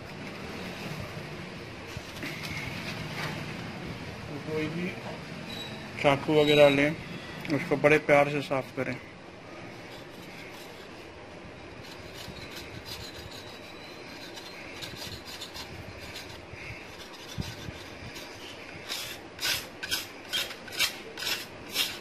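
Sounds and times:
knife blade scraping metal rod: 9.7s - 11.2s, 11.8s - 22.0s.

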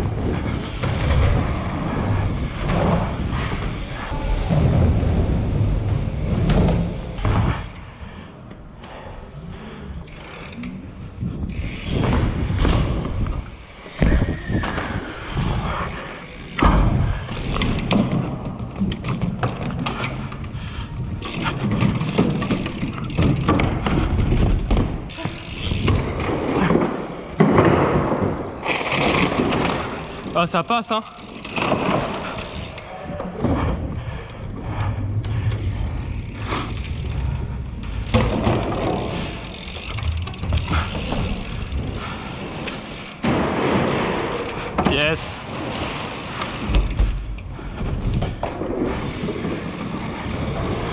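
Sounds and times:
bike tyres rolling over wooden planks: 0.0s - 50.9s
clatter of knocks and rattles: 16.6s - 30.2s.

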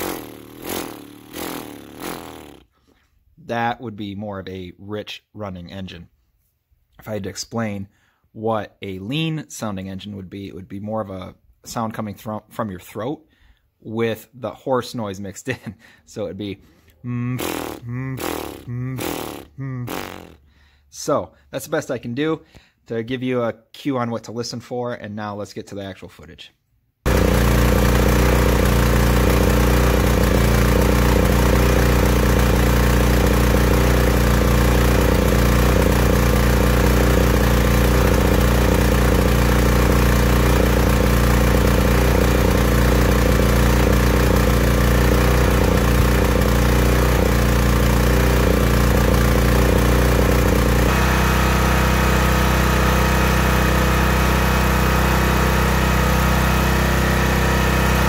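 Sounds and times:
generator engine sputtering: 0.0s - 2.6s, 27.1s - 58.0s.

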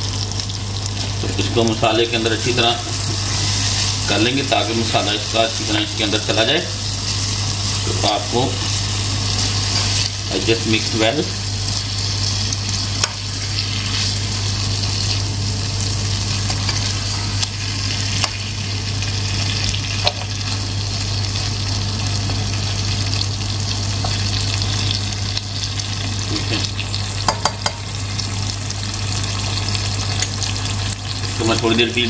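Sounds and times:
meat sizzling in a pot: 0.0s - 32.0s
spatula tapping pot: 27.2s - 27.8s.

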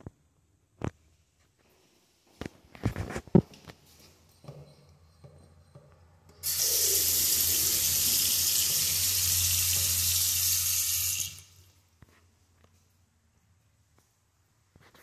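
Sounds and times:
faucet water running into sink: 6.4s - 11.7s.

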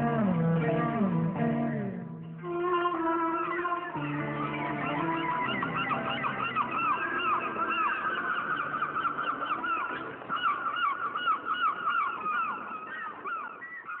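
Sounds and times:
flock of birds calling: 3.2s - 14.0s.

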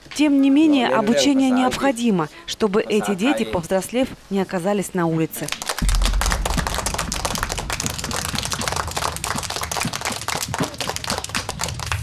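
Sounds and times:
children clapping: 5.5s - 12.0s.

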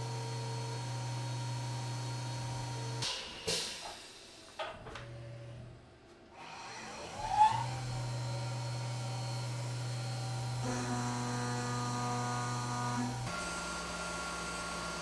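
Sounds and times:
milling spindle whirring and humming: 6.4s - 15.0s.

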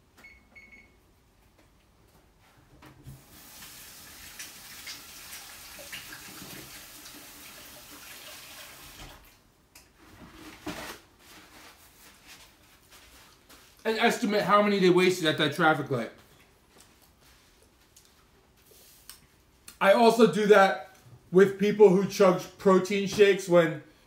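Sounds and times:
faucet running into sink: 3.2s - 9.2s.

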